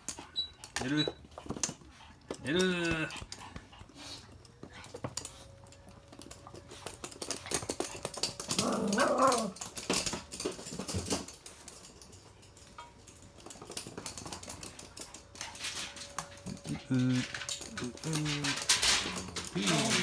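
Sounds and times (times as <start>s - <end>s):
dog claws clicking on floor: 0.0s - 20.0s
dog whining: 8.4s - 9.7s, 19.2s - 20.0s.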